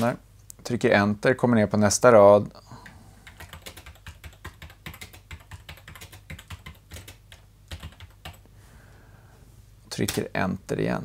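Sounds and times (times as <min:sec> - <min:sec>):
computer keyboard typing: 0:03.2 - 0:08.4.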